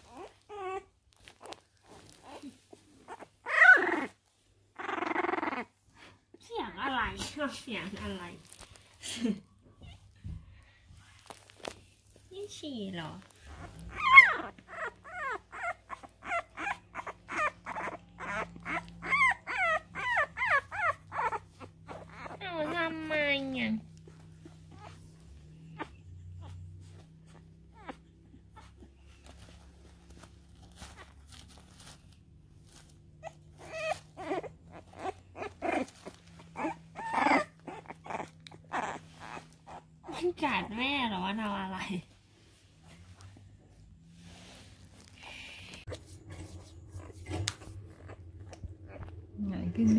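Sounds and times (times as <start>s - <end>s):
puppy crying: 0.0s - 5.8s, 13.4s - 23.3s, 24.0s - 29.2s, 33.1s - 40.3s, 47.0s - 49.2s
faint rustling: 0.0s - 49.9s.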